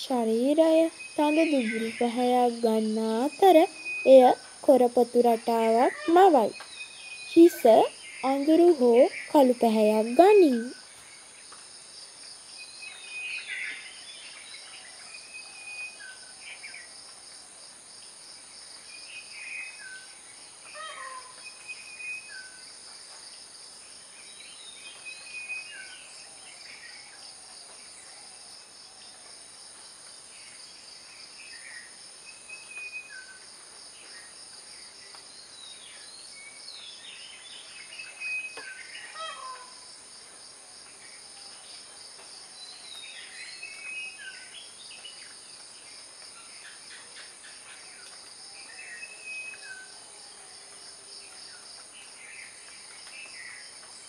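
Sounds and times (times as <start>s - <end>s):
birds whistling calls: 3.2s - 4.4s.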